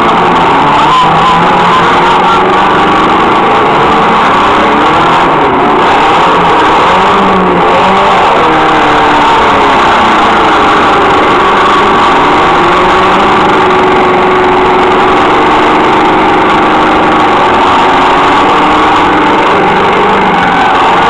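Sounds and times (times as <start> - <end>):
car engines revving: 0.0 - 21.0.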